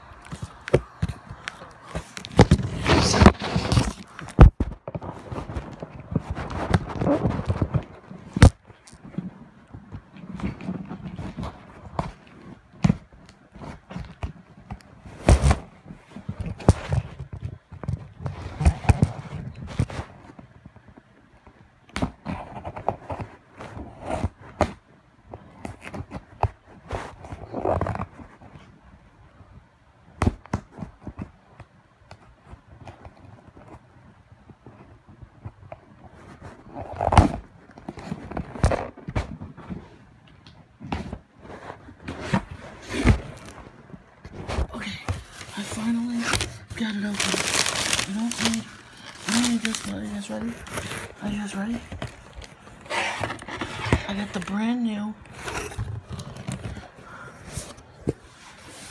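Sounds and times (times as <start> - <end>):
rustling scrapes: 0.0 - 12.6, 15.0 - 20.6, 25.5 - 28.8, 35.9 - 40.1, 40.8 - 58.9
toy box being opened with tools: 45.0 - 54.6.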